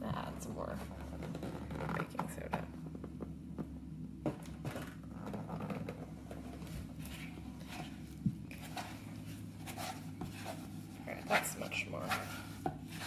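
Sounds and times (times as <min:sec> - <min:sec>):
steady low hum: 0:00.0 - 0:13.0
soft scraping: 0:05.3 - 0:13.0.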